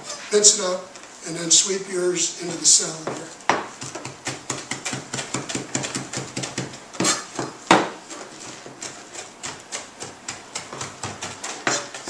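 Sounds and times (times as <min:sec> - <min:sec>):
knives chopping on cutting boards: 0:03.1 - 0:08.0, 0:08.7 - 0:12.0.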